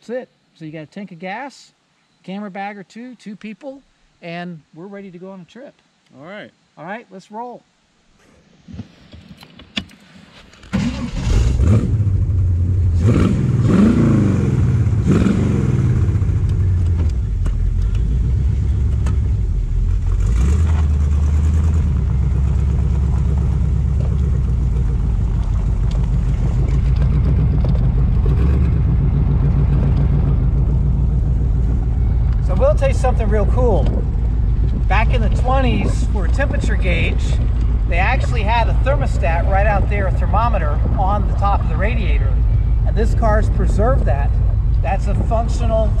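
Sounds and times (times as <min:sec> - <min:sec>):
car engine starting: 0:09.8 - 0:46.0
engine revving: 0:10.7 - 0:46.0
engine running steadily: 0:10.8 - 0:46.0.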